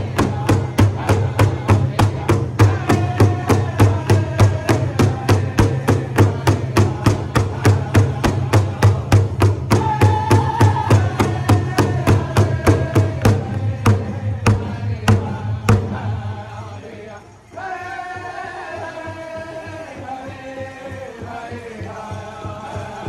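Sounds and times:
large drum beat: 0.0 - 16.4
group singing in chorus: 0.0 - 23.0.

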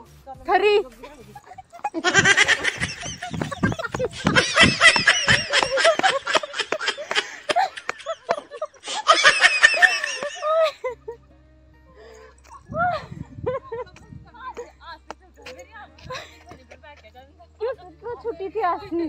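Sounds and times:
women laughing loudly: 1.4 - 11.1.

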